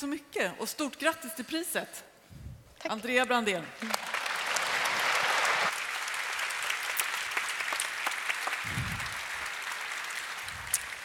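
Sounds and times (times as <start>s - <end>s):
audience applauding: 3.8s - 11.0s.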